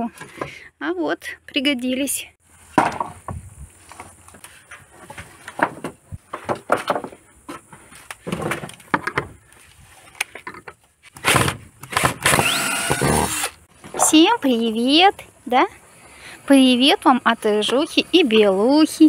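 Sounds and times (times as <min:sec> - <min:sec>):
wooden boards clattering: 0:02.7 - 0:03.4, 0:04.7 - 0:09.4
cordless drill driving screw: 0:11.8 - 0:13.6.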